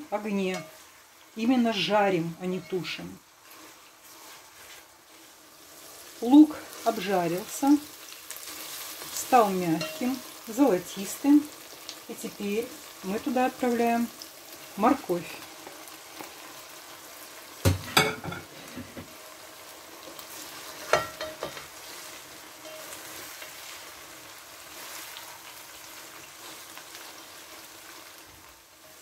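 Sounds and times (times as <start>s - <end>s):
vegetables sizzling in hot oil: 0.0s - 29.0s
spatula stirring: 2.5s - 7.1s, 8.3s - 10.4s.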